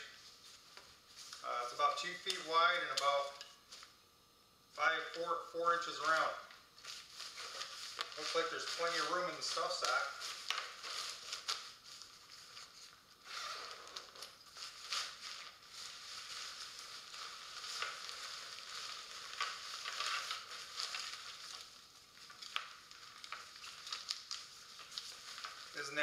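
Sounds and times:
tent fabric rustling and crinkling: 0:06.8 - 0:26.0.

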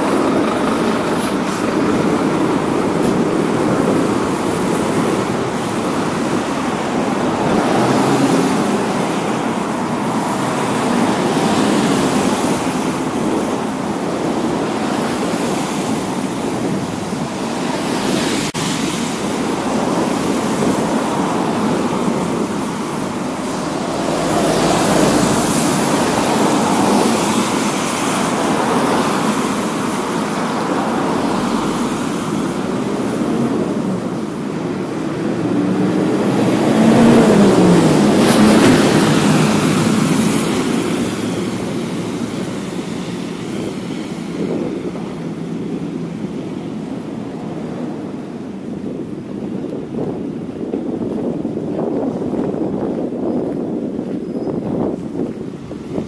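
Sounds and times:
cars passing on wet asphalt: 0:00.0 - 0:56.0.

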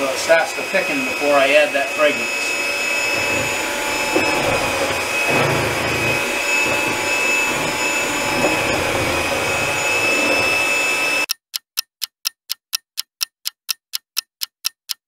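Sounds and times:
electric hand mixer whining: 0:00.0 - 0:11.3.

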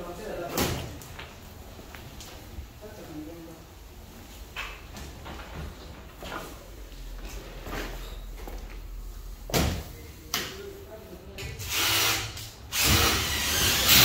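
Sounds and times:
power drill running: 0:11.7 - 0:14.0.

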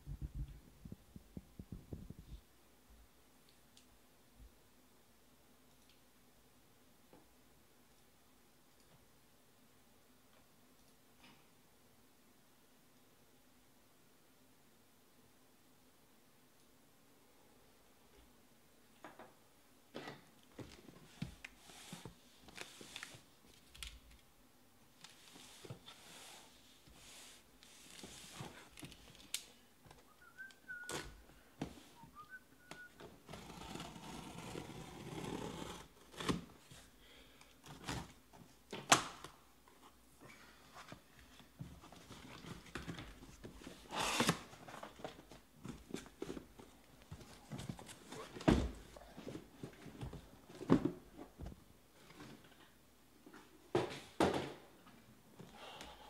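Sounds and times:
packing tape being slit: 0:43.9 - 0:44.5.

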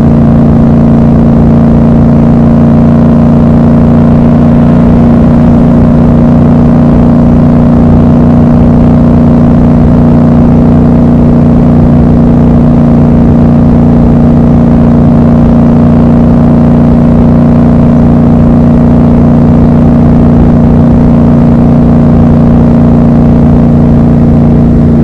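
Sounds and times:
motorcycle engine cruising: 0:00.0 - 0:25.0.

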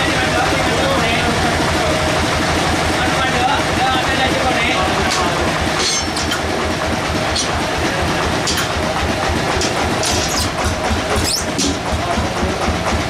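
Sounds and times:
sawmill machinery humming: 0:00.0 - 0:13.0
log knocks and squeaks: 0:05.1 - 0:06.6, 0:07.3 - 0:07.6, 0:08.4 - 0:08.8, 0:09.6 - 0:11.9.

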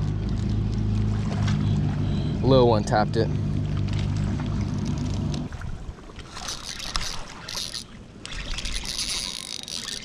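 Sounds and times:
fishing reel being cranked: 0:06.4 - 0:10.0.

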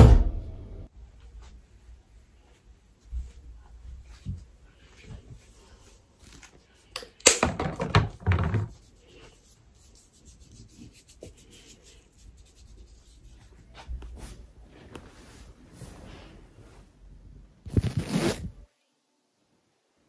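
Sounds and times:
close rustling and rubbing: 0:08.5 - 0:17.0, 0:17.7 - 0:18.6.

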